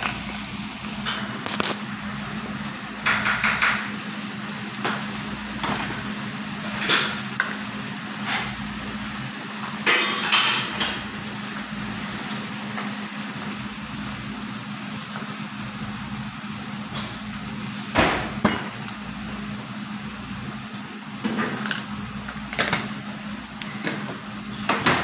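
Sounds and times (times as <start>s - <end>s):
kitchenware clattering knocks: 3.0s - 3.9s.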